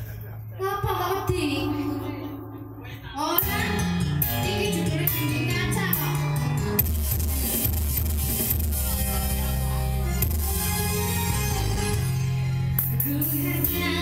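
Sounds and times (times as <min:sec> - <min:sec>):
woman singing into a microphone: 0:03.2 - 0:06.3, 0:13.0 - 0:14.0
live pop music with bass and beat: 0:03.3 - 0:14.0.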